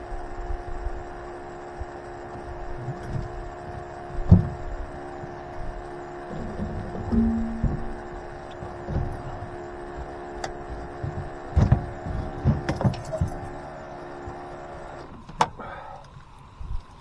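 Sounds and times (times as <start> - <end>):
steady hum: 0.0 - 17.0
thumps and rattles on boat deck: 2.3 - 4.8, 6.2 - 13.6
sharp knock: 7.1 - 8.0.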